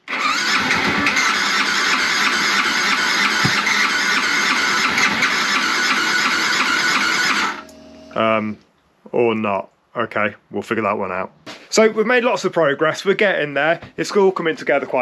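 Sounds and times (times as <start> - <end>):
motorcycle starter cranking: 0.1 - 8.2.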